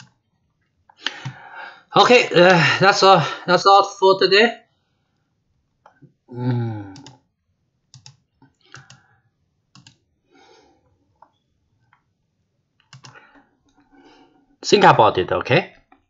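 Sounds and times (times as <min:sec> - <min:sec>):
computer clicks: 0:00.0 - 0:00.2, 0:06.9 - 0:07.2, 0:07.9 - 0:09.1, 0:09.7 - 0:10.0, 0:12.8 - 0:13.8.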